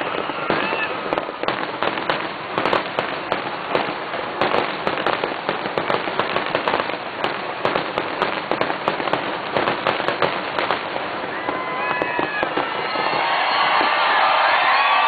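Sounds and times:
fireworks bangs and crackles: 0.0 - 15.0.

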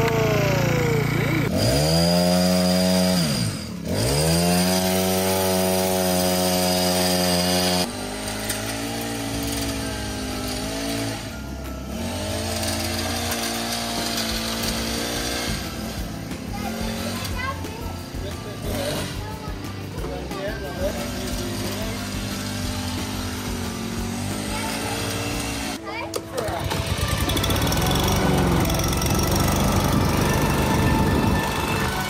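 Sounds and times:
hedge trimmer engine running: 0.0 - 32.0.

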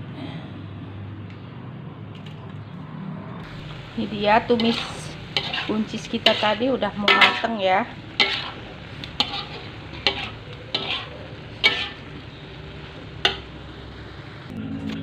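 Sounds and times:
food sizzling in a wok: 3.4 - 14.5
spatula scraping and knocking pan: 4.5 - 12.2, 13.2 - 13.6.

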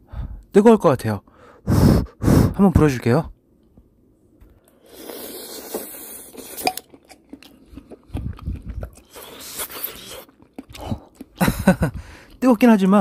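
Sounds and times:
person blowing on food: 1.6 - 2.6, 4.8 - 6.7
chewing with wet mouth sounds: 4.9 - 12.8.

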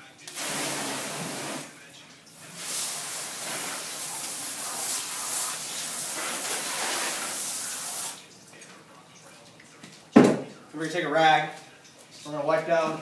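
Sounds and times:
water hose spraying: 0.3 - 1.8, 2.4 - 8.3.

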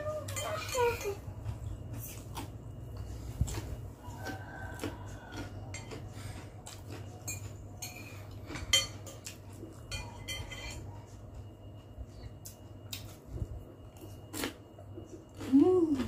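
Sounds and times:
low steady hum: 0.0 - 16.0
cutlery clinking on glass bowl: 7.2 - 11.0.

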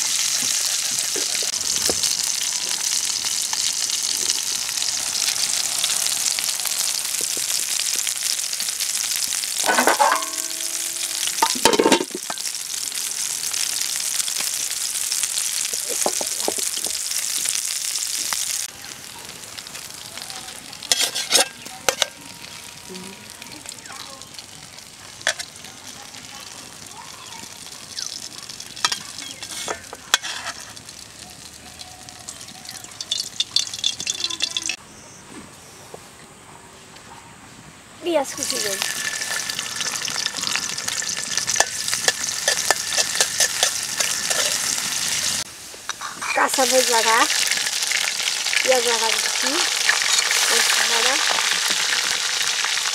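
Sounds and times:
fish sizzling in hot oil: 0.0 - 34.8, 38.2 - 52.9
metal pans clanking: 9.6 - 12.5, 20.9 - 22.2, 28.8 - 30.8, 41.5 - 44.7.

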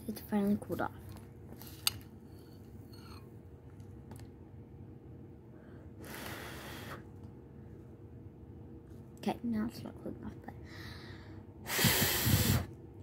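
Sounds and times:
steady low hum: 0.0 - 13.0
breath blowing on food: 6.0 - 7.1, 11.6 - 12.8.

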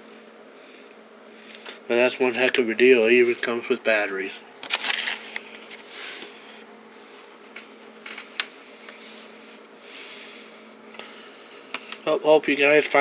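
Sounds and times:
plastic packaging rustling: 4.6 - 5.9.

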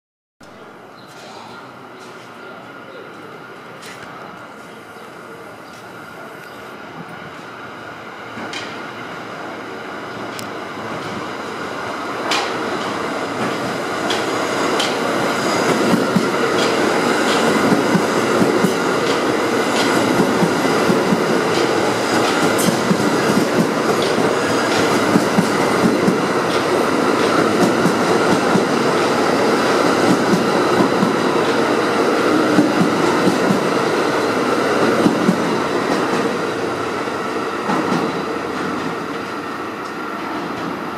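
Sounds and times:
subway train passing: 0.4 - 40.9.

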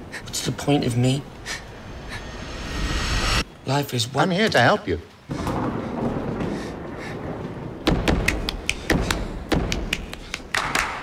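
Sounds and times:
low rumble: 1.2 - 3.6.

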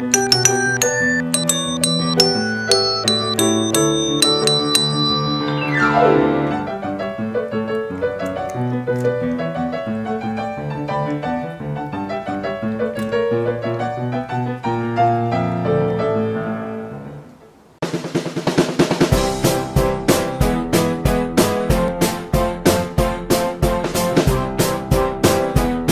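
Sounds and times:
piano music: 0.0 - 17.4.

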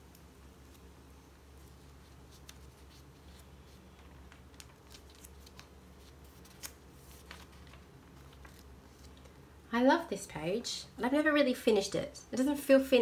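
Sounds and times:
paper pages rustling: 1.5 - 9.4.

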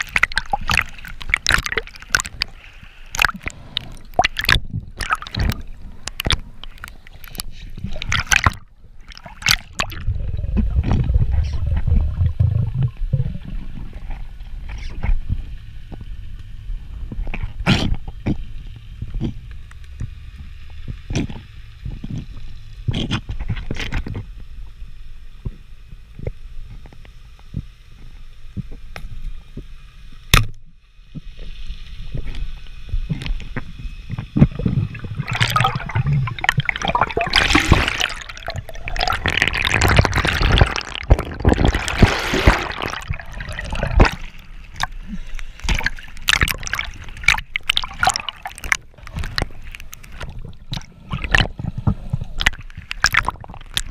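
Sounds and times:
bubbling and splashing water: 0.0 - 15.4, 32.0 - 53.9
low underwater rumble: 0.0 - 28.9, 32.0 - 53.9.

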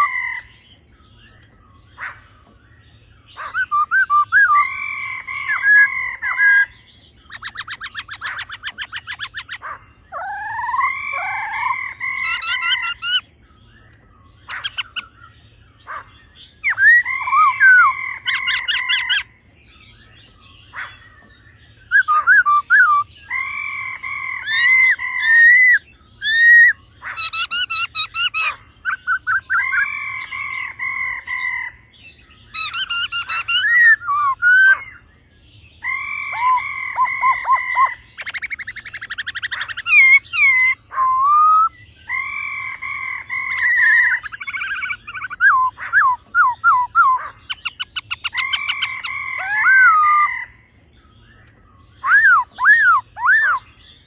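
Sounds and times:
bird chattering rattles: 0.0 - 31.7, 35.8 - 41.0, 42.1 - 50.5
bird whistling song: 0.0 - 54.0.

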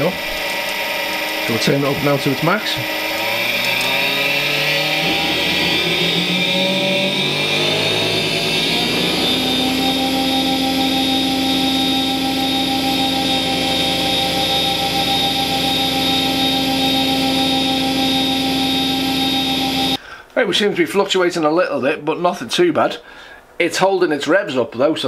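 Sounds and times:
lathe motor whine: 0.0 - 20.0.

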